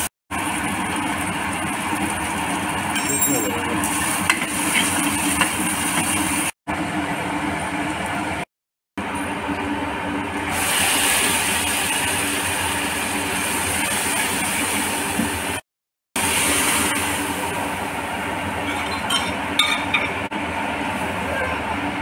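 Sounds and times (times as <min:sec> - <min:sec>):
spices sizzling in hot oil: 0:00.0 - 0:06.6, 0:10.5 - 0:15.6, 0:16.2 - 0:17.7
steady mechanical hum: 0:00.0 - 0:15.6, 0:16.2 - 0:22.0.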